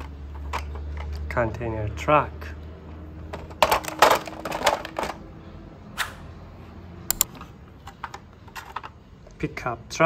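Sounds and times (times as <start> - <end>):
plastic toy trucks clicking: 0.0 - 1.5, 3.2 - 5.3, 7.1 - 9.0.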